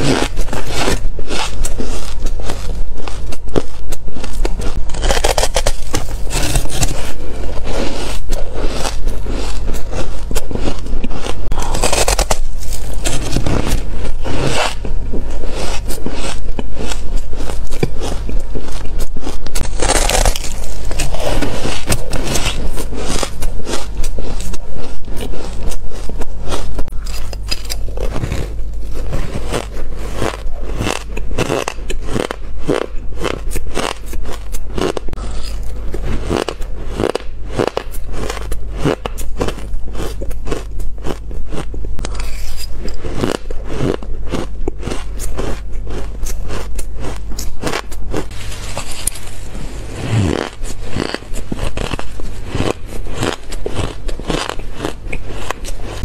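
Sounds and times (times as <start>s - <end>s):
chewing shaved ice: 0.0s - 56.0s
low electrical hum: 0.0s - 56.0s
metal spoon scraping ice: 42.0s - 56.0s.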